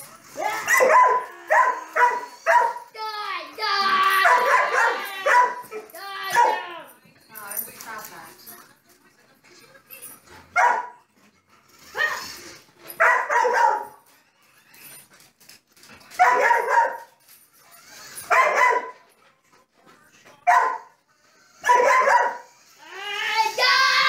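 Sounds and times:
dog barking: 0:00.6 - 0:02.8, 0:04.2 - 0:06.6, 0:10.6 - 0:11.0, 0:13.0 - 0:14.0, 0:16.2 - 0:17.1, 0:18.3 - 0:19.0, 0:20.4 - 0:20.9, 0:21.6 - 0:22.5.

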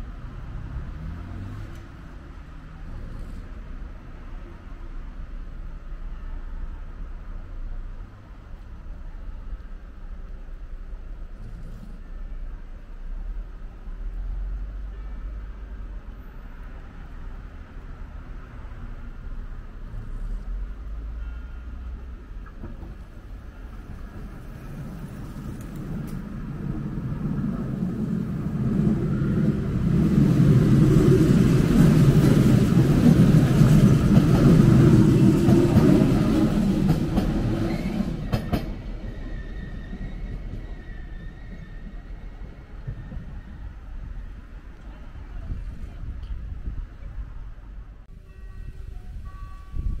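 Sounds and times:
train rumbling past: 0:00.0 - 0:50.0
train wheels clicking: 0:28.8 - 0:41.8.

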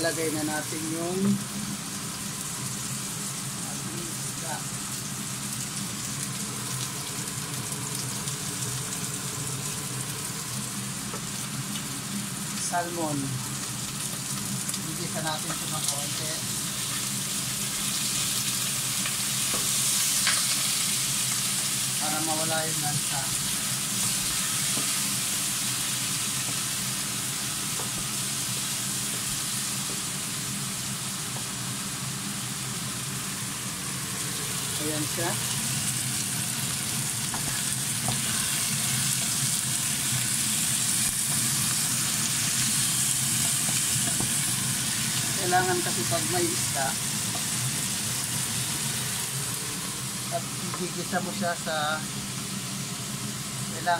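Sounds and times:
vegetables sizzling in a saucepan: 0:00.0 - 0:53.9.

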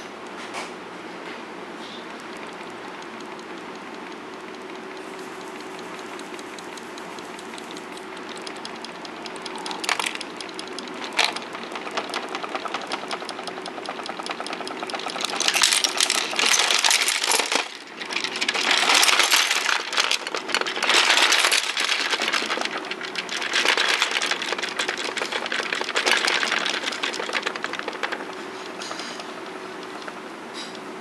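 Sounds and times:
plastic miniatures rattling and clattering: 0:05.5 - 0:30.1.

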